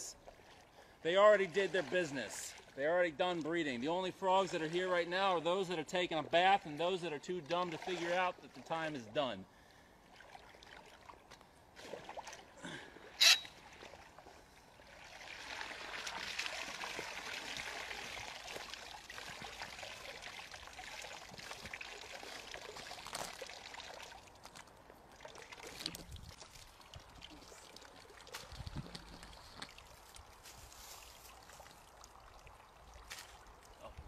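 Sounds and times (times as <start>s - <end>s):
net splashing through water: 1.4s - 2.8s, 10.1s - 12.6s, 13.6s - 33.8s.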